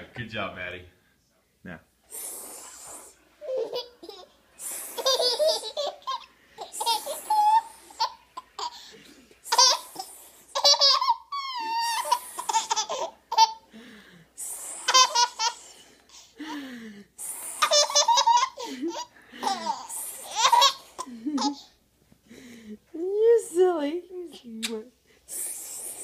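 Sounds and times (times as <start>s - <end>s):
toddler laughing: 5.0s - 8.8s, 9.5s - 13.6s, 17.6s - 21.6s
toddler squealing: 11.3s - 12.2s.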